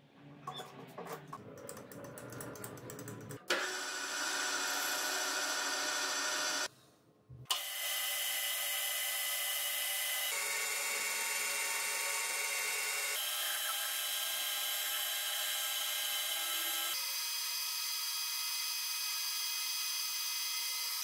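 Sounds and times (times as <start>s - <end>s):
lathe motor whining: 3.5s - 6.7s.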